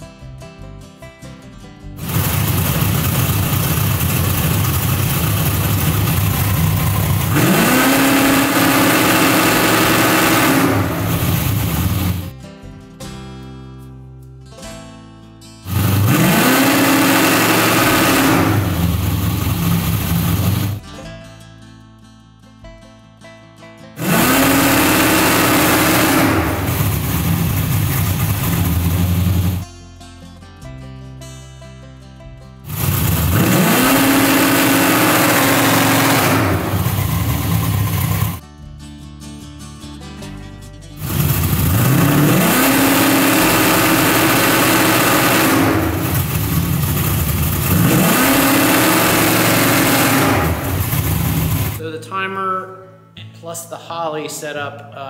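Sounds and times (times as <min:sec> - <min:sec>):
car engine idling and revving: 0:02.0 - 0:12.3, 0:15.6 - 0:20.8, 0:24.0 - 0:29.6, 0:32.6 - 0:38.4, 0:41.0 - 0:51.8.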